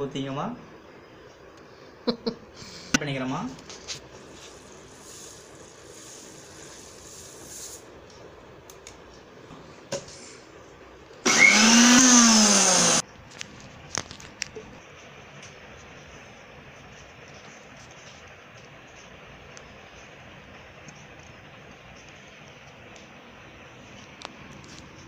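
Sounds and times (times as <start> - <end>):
sugar pouring into jar: 4.3 - 7.9
mixer grinder motor: 11.2 - 13.0.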